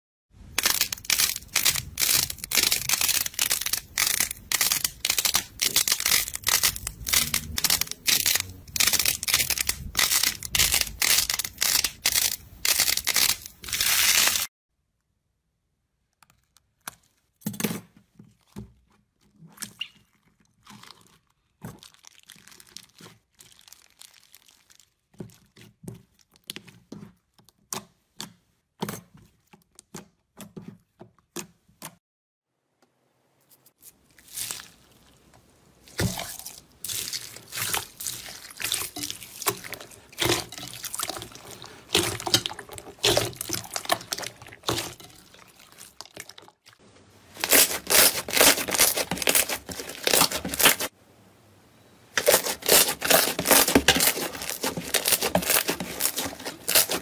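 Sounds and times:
crackling and popping of squeezed balls: 0.4 - 14.5, 19.8 - 28.3, 33.9 - 46.7, 52.2 - 57.0
scissors snipping plastic bag: 0.5 - 14.5, 47.4 - 50.9, 52.2 - 57.0
slime crackling when stretched: 0.5 - 14.5, 21.0 - 25.2, 47.3 - 50.9, 52.2 - 57.0.

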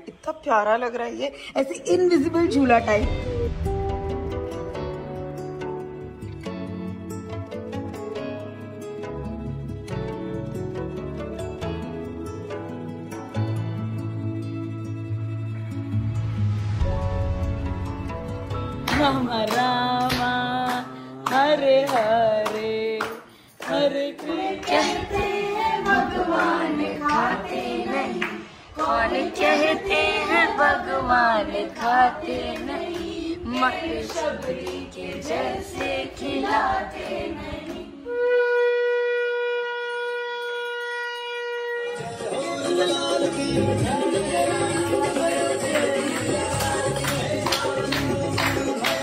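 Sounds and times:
hand claps: 18.8 - 25.1, 31.8 - 37.1, 44.9 - 49.0
group singing: 18.9 - 38.1, 42.1 - 49.0
conch shell blown: 38.0 - 42.7.

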